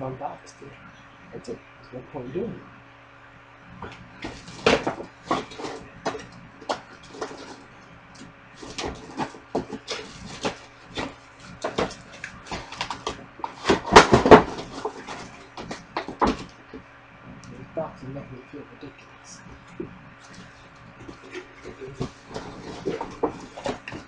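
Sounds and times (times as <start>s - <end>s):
cardboard carton knocks and rustles: 4.2s - 7.6s, 8.6s - 16.5s, 21.0s - 24.0s.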